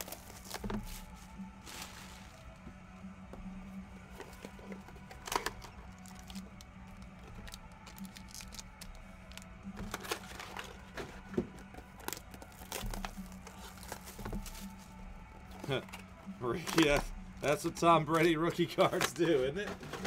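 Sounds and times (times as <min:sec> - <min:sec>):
plastic wrapper crinkling and tearing: 0:00.0 - 0:01.0, 0:04.3 - 0:14.7.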